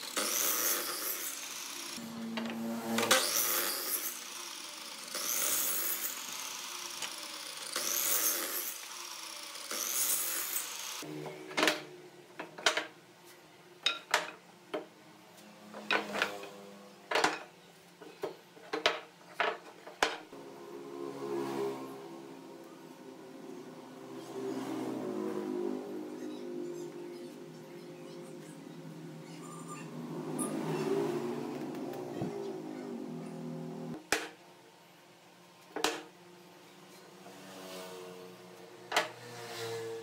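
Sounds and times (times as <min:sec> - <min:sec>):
miter saw cutting wood: 0:00.0 - 0:11.2.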